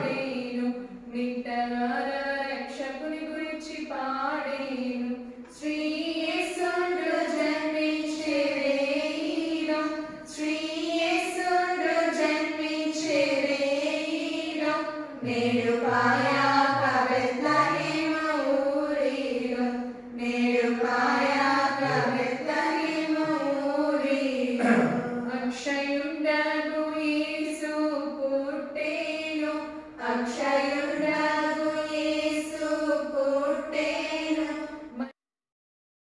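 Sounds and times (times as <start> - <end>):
women singing a hymn: 0.0 - 35.0.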